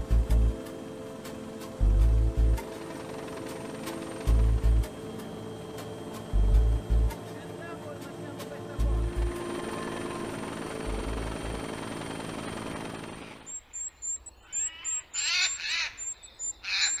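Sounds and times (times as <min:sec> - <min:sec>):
helicopter rotor and engine: 0:00.0 - 0:15.6
bird peeping: 0:13.5 - 0:17.0.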